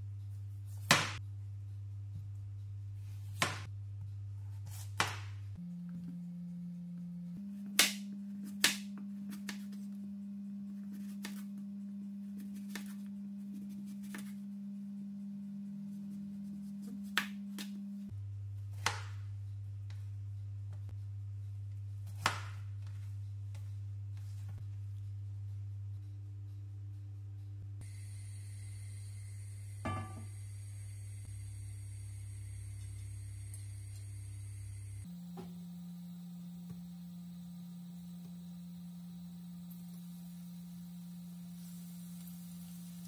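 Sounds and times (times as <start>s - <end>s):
low hum: 23.2s - 43.0s.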